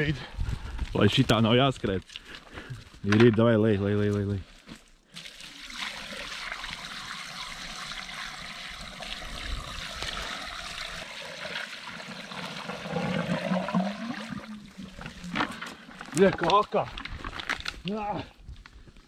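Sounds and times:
water pouring into a pipe: 5.1s - 17.0s.

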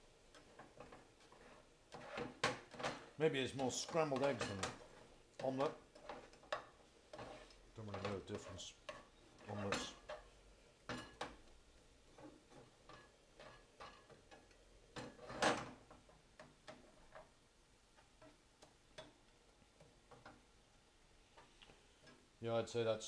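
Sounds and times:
plastic spatula scraping frying pan: 0.4s - 2.8s, 3.6s - 10.4s.

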